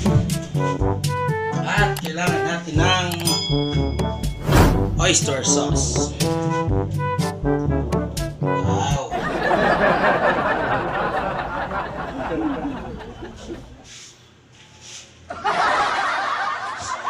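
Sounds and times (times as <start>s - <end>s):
canned crowd laughter: 9.1s - 13.8s, 15.3s - 17.0s.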